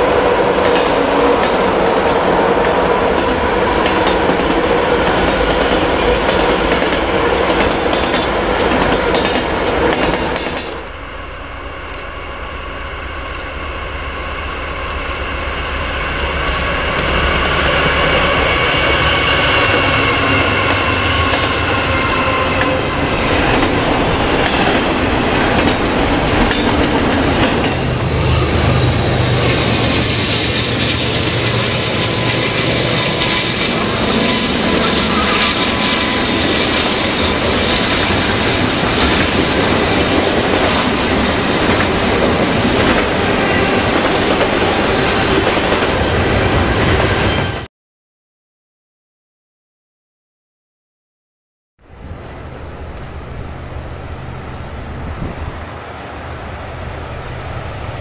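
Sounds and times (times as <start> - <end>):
train wheels clacking over rails: 0.0 - 10.9, 17.6 - 47.7
diesel locomotive whine: 0.0 - 47.7, 51.8 - 58.0.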